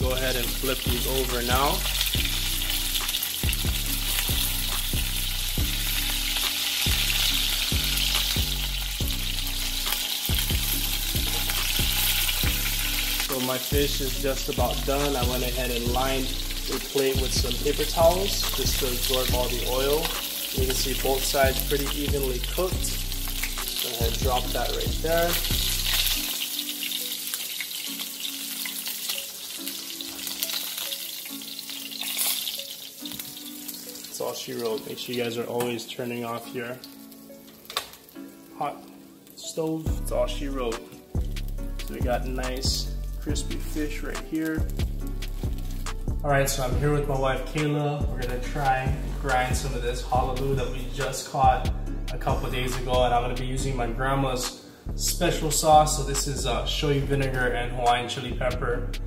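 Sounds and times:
fish frying in hot oil: 0.0s - 46.1s
background music: 0.0s - 59.0s.

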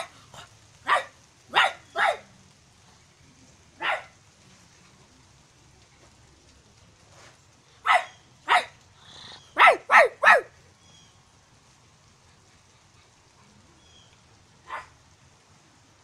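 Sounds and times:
person imitating dog barks: 9.6s - 10.5s.

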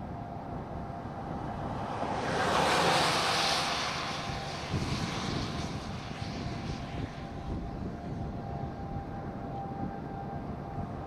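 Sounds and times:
car road noise: 0.0s - 11.0s
tyres hissing on wet road: 1.8s - 6.3s.

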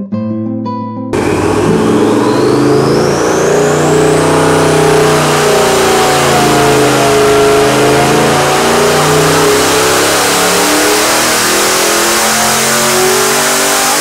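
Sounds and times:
engine running loud under load: 1.2s - 14.0s
turbo whistle: 1.2s - 14.0s.

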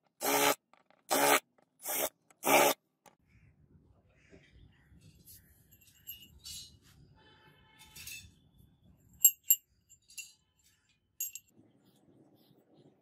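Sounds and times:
metal knife handles clinking: 9.2s - 10.4s, 11.2s - 11.5s.

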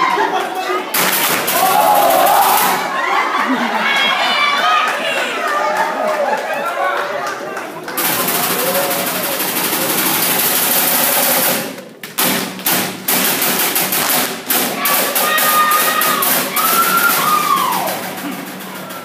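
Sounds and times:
crowd noise: 0.0s - 19.0s
long high cry: 15.0s - 18.0s.

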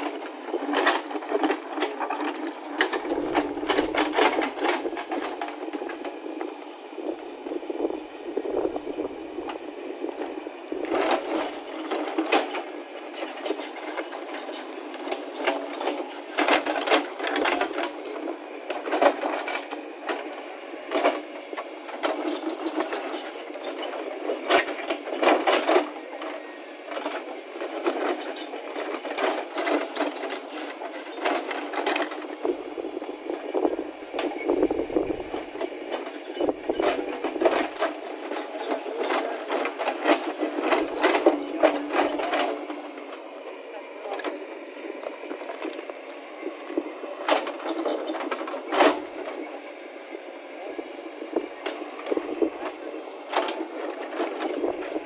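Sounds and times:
diesel engine running: 2.6s - 5.0s, 32.4s - 37.8s.

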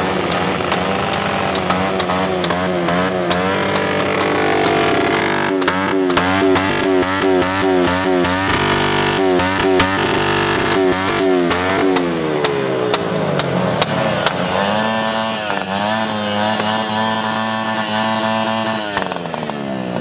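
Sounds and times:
pit bike engine revving: 0.0s - 20.0s.

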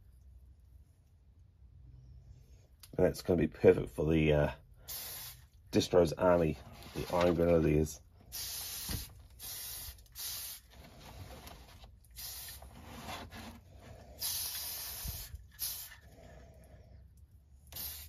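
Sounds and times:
spray paint can hissing: 4.9s - 5.5s, 8.3s - 10.7s, 12.1s - 12.8s, 14.2s - 16.0s, 17.7s - 18.0s.

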